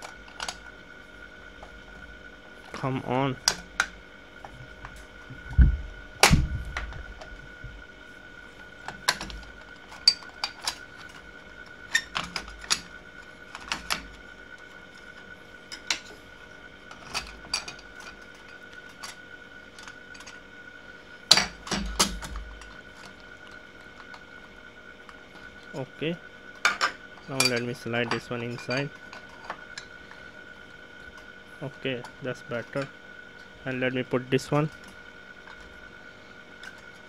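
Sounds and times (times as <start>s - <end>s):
faint steady whine: 0.0s - 37.0s
heavy thumps: 5.3s - 7.8s.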